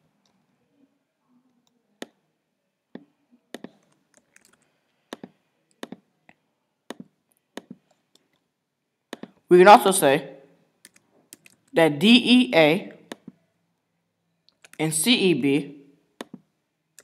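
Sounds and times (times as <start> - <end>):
mouse and keyboard clicks: 3.5 - 6.1, 10.8 - 11.7, 16.2 - 17.0.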